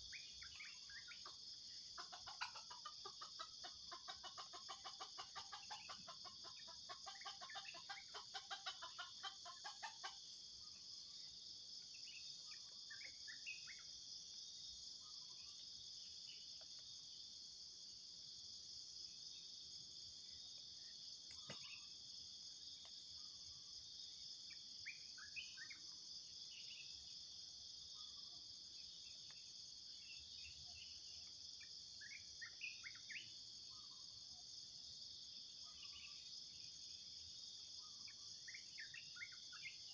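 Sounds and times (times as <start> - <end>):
insects droning: 0.0 - 39.9
junglefowl clucking: 1.1 - 10.3.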